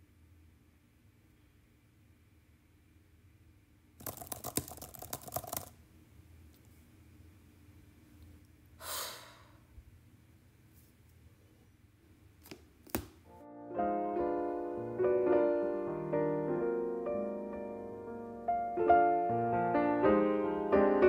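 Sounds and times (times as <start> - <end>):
keyboard typing clicks: 4.0 - 5.7
heavy breathy sigh: 8.8 - 9.7.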